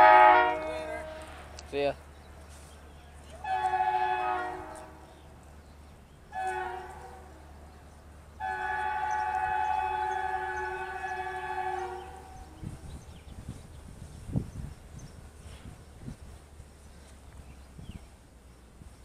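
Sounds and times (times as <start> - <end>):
locomotive air horn blasts: 0.0 - 1.4, 3.4 - 5.2, 6.3 - 7.4, 8.4 - 12.8.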